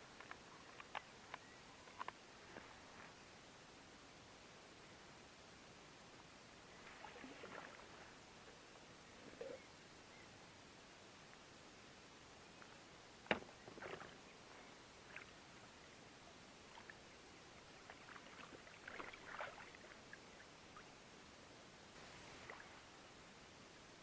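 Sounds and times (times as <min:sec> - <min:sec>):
water splashing and sloshing: 0:06.8 - 0:08.2, 0:13.3 - 0:14.3, 0:17.7 - 0:20.2, 0:22.1 - 0:22.9.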